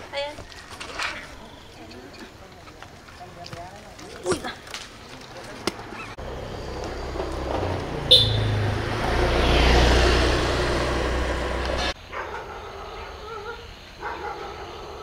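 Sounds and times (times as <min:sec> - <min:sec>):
vehicle passing on road: 0:05.4 - 0:12.0.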